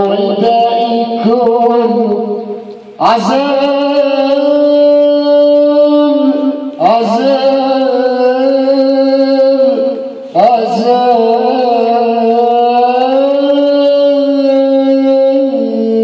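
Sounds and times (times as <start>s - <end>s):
man singing into microphone: 0.0s - 16.0s.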